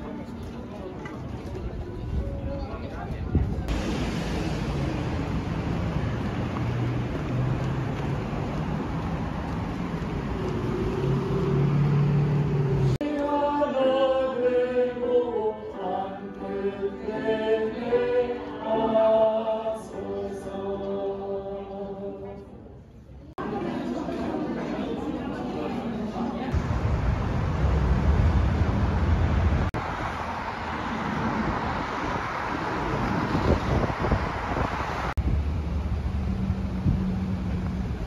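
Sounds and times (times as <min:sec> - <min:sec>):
street noise with low hum: 0:00.0 - 0:38.0
singing voices with music: 0:12.9 - 0:22.7.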